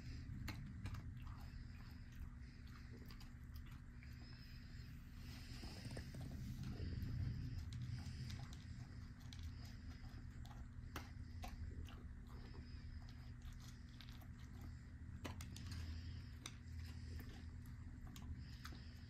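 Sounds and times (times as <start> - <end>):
dog crunching dry kibble: 0.0 - 19.0
faint low hum: 0.0 - 19.0.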